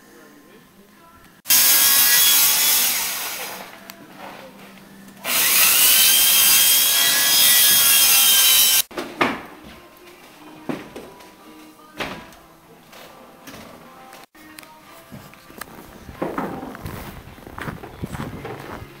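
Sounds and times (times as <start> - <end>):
power saw cutting wood: 1.5 - 3.8, 5.2 - 8.9.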